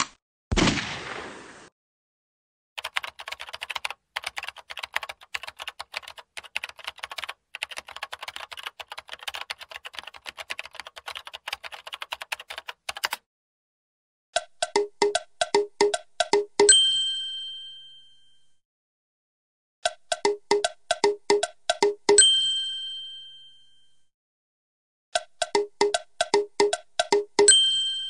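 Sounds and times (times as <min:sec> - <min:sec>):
rapid keyboard keystroke clicks: 0:02.8 - 0:13.2.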